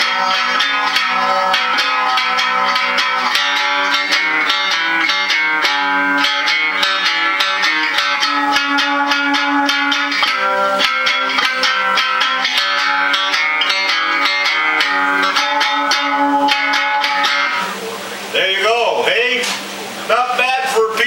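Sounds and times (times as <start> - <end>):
plucked guitar notes: 0.0 - 20.5.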